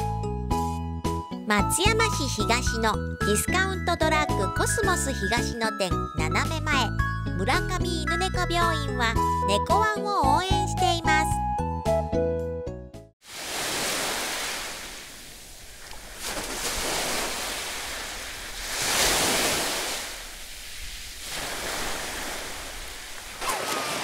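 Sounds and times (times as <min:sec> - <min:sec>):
sea surf washing on beach: 0:13.2 - 0:24.0.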